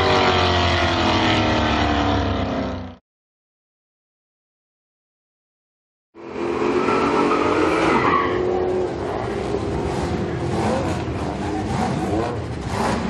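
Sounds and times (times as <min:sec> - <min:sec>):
drag racing car engines: 0:00.0 - 0:03.0, 0:06.2 - 0:13.0.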